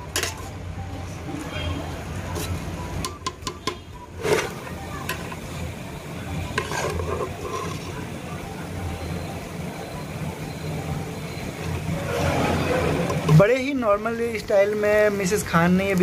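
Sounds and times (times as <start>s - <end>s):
rice and vegetables sizzling: 1.4s - 16.0s
metal ladle stirring and scraping: 3.3s - 5.4s, 6.5s - 8.2s.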